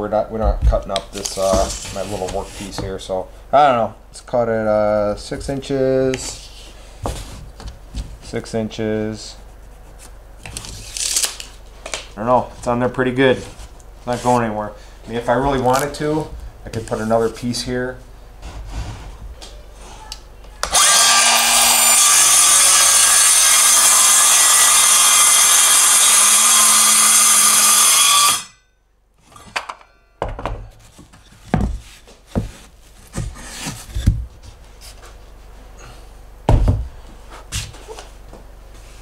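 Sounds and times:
circular saw cutting wood: 20.7s - 28.6s
knocks of boards being handled: 29.5s - 34.4s.

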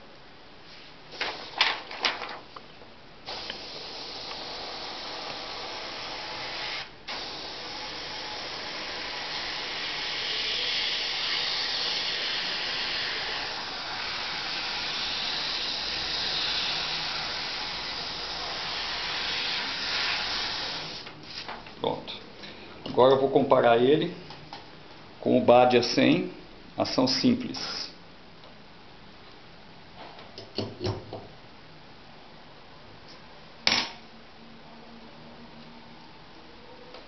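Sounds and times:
airbrush spraying hiss: 3.2s - 21.5s.

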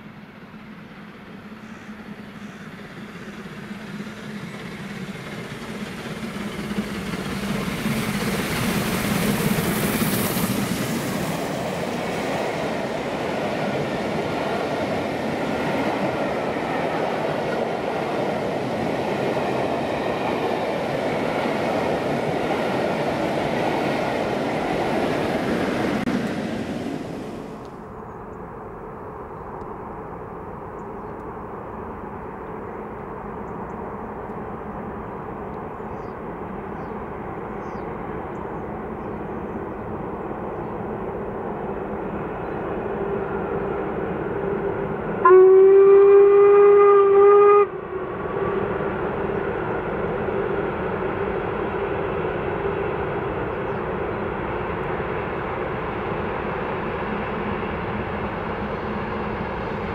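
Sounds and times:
steam locomotive running: 0.0s - 29.2s, 29.8s - 59.9s
steam train whistle: 45.2s - 48.7s.

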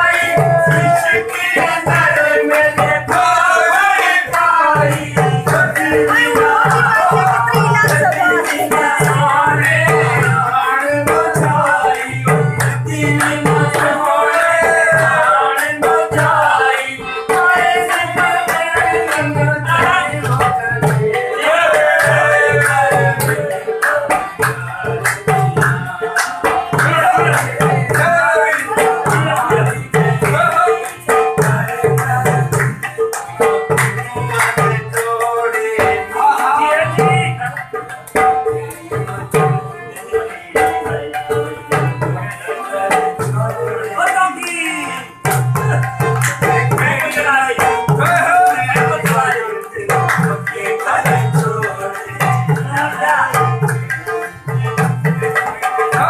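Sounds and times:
person singing: 0.0s - 32.6s
drum beating fast rhythm: 0.0s - 44.3s, 45.1s - 56.0s
harmonium drone: 0.0s - 56.0s.

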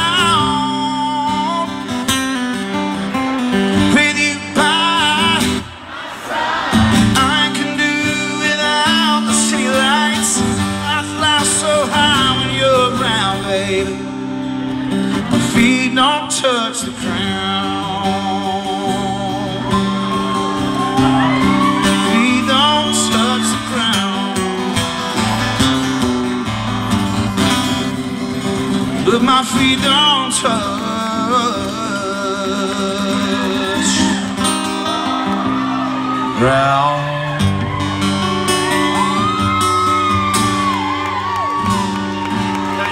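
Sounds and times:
acoustic guitar strumming: 0.0s - 42.9s
person singing: 6.3s - 14.1s, 15.3s - 25.1s, 28.9s - 34.6s.

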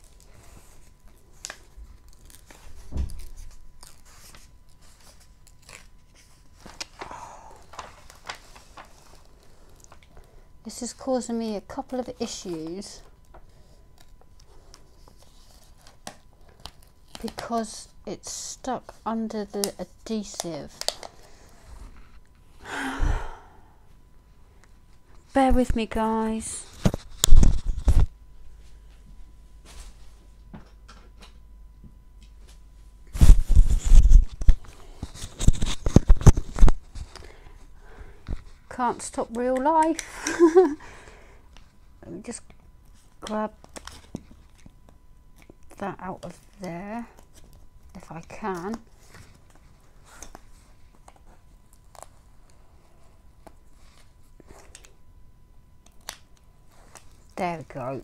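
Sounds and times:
rustling handling noise: 0.0s - 17.8s, 32.3s - 40.5s.

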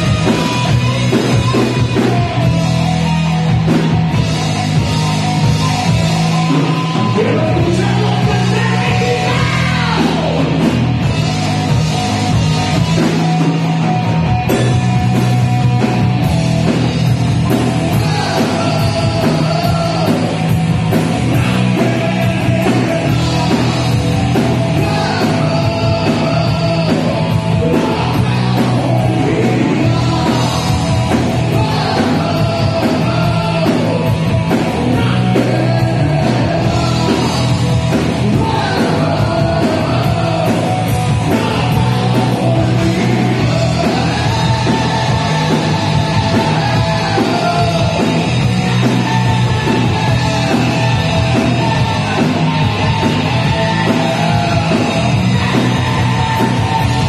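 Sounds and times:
bass guitar: 0.0s - 57.0s
distorted electric guitars: 0.0s - 57.0s
drums: 0.0s - 57.0s
person singing and shouting: 6.5s - 10.7s, 17.8s - 20.6s, 21.2s - 57.0s.

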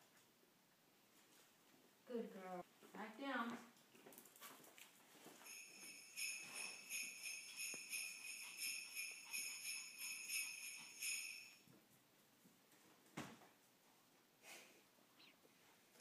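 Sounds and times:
small jingle bell ringing: 5.4s - 11.7s.

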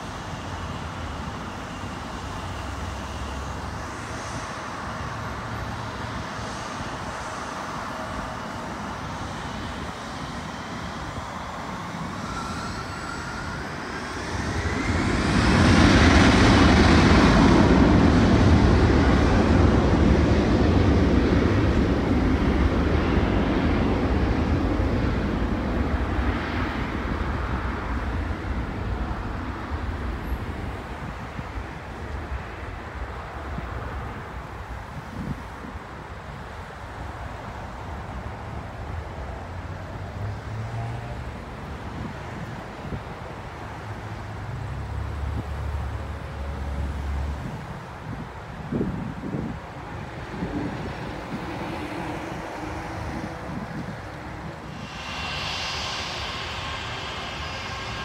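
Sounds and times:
highway traffic: 0.0s - 58.0s
jet engines whining and roaring: 0.0s - 58.0s.

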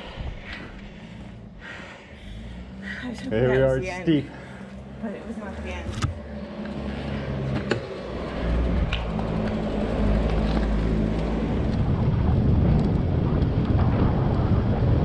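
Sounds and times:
low steady hum: 0.0s - 15.0s
wind rumbling on microphone: 7.6s - 15.0s.

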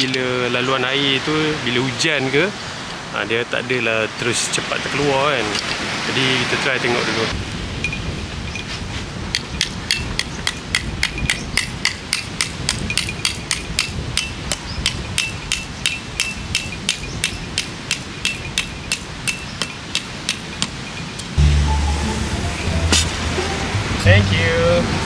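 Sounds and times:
low rushing background: 19.2s - 25.0s
hammer blows on peg: 22.8s - 24.2s.

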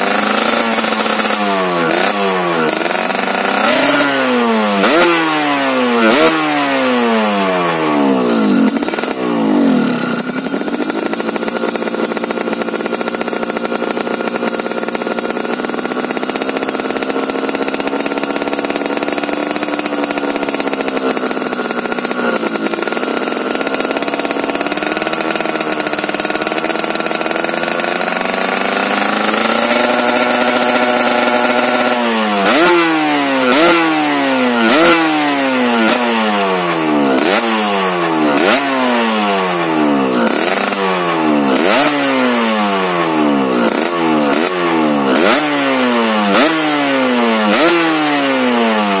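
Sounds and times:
two-stroke motorcycle engine revving: 0.0s - 49.0s.

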